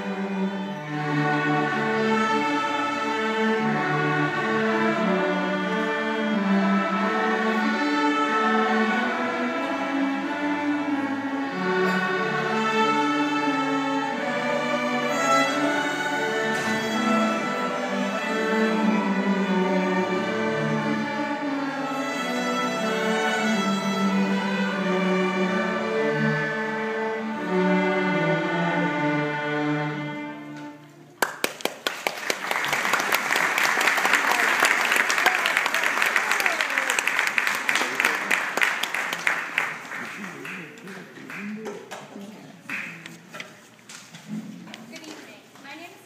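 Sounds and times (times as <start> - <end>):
string ensemble playing: 0.0 - 31.3, 32.0 - 42.0
audience applause: 31.2 - 43.0.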